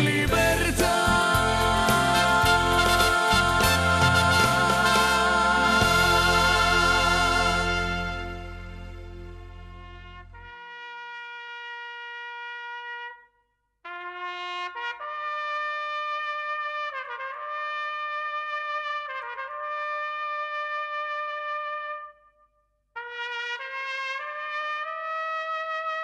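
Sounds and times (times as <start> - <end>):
low backing music: 0.0 - 10.4
solo trumpet playing slow lament: 2.2 - 13.3, 13.9 - 22.4, 23.0 - 26.0.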